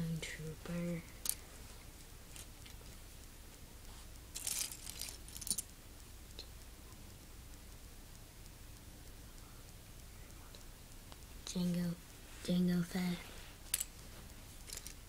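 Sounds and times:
handling rustling: 0:04.0 - 0:05.6, 0:13.7 - 0:15.0.

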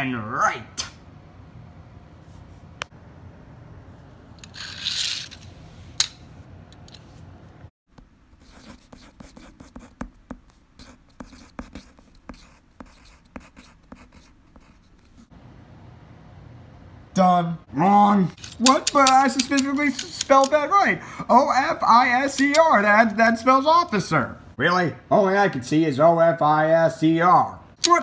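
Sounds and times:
pencil writing on paper: 0:08.0 - 0:15.3
sharp ticks: 0:18.5 - 0:20.6.

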